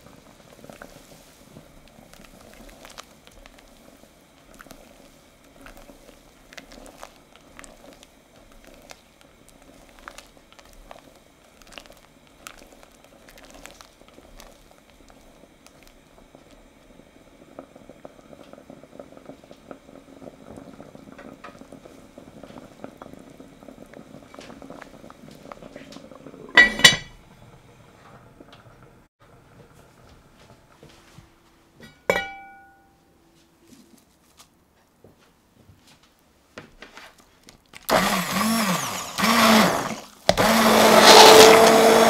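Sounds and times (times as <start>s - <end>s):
soup bubbling in a pot: 0.0s - 29.9s, 37.2s - 42.0s
heavy lid clanking on pot: 26.5s - 27.2s.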